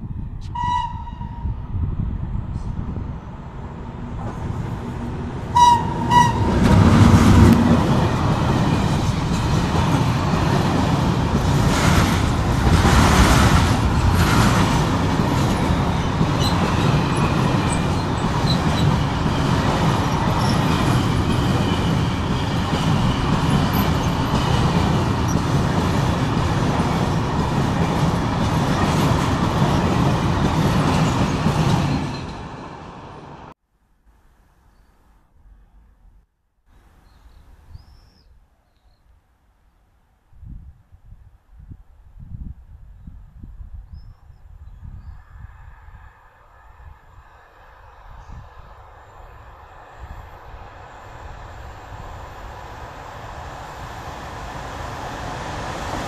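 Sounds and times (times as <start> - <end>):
locomotive horn blasts: 0.4 - 1.6, 5.5 - 6.8
train wheels clattering on rails: 5.7 - 32.8.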